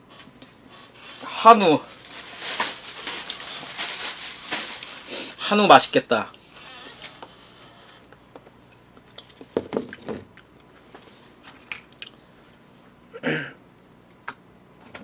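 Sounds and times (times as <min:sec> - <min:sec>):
plastic crinkle: 0:01.5 - 0:05.4
plastic containers clicking and rustling: 0:01.9 - 0:05.1.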